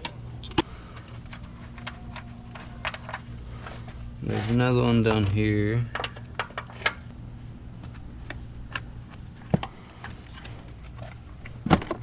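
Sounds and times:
tools and plastic parts clicking: 0:00.0 - 0:03.3
faint low hum: 0:00.0 - 0:12.0.

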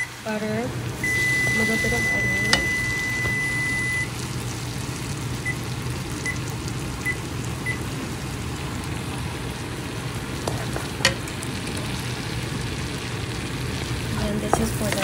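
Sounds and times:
garlic and onion sizzling in wok: 0:00.0 - 0:15.0
short high beeps: 0:01.0 - 0:04.1
wooden spatula stirring: 0:10.4 - 0:11.2, 0:14.2 - 0:15.0.

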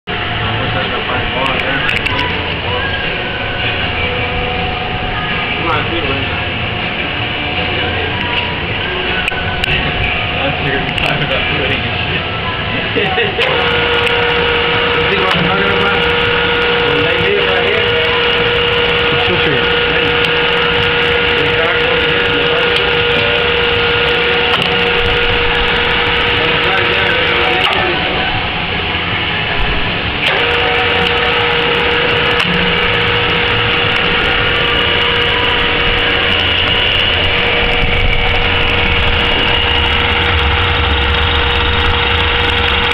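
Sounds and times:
drill press machine drone: 0:00.0 - 0:42.9
machine whine: 0:00.0 - 0:42.9
click: 0:24.5 - 0:24.8, 0:30.2 - 0:32.6.

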